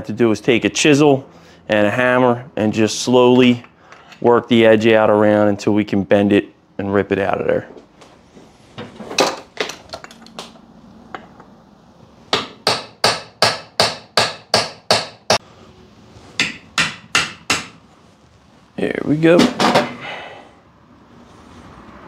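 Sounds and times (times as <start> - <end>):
hammer striking chisel: 12.3 - 15.4, 16.4 - 17.8.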